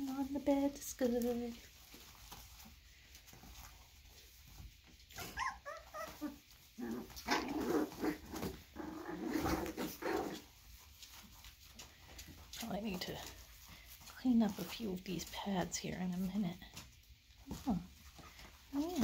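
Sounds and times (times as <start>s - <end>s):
puppies play growling: 1.8s - 15.4s
puppies yipping: 5.1s - 8.5s.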